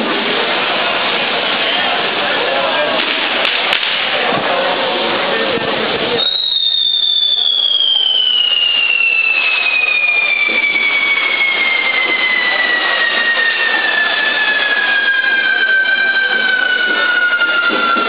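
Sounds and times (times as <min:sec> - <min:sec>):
fainter firework whistles: 0:06.0 - 0:18.0
shrill firework whistle: 0:06.1 - 0:18.0
fizzing spark fountains: 0:06.2 - 0:16.0.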